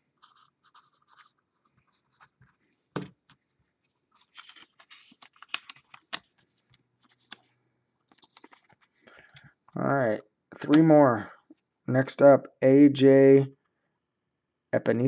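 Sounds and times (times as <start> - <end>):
paper rustling and sliding: 4.0 - 7.4.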